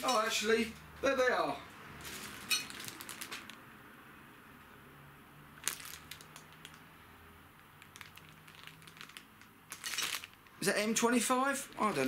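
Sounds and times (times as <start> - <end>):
plastic bag crinkling: 2.0 - 3.6, 5.6 - 6.9, 7.8 - 10.5.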